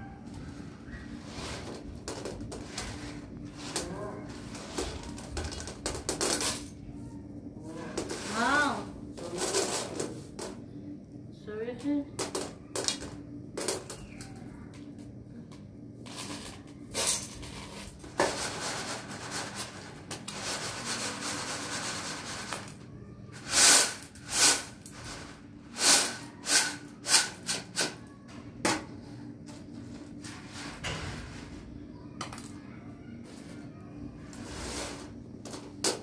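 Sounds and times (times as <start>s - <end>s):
grain rustling on metal tray: 1.1s - 5.3s, 16.0s - 22.8s, 34.3s - 35.2s.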